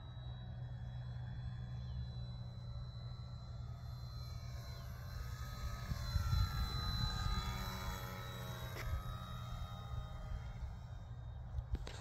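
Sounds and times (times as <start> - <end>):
model plane motor whining: 0.0 - 12.0
wind rumble on microphone: 5.7 - 8.0.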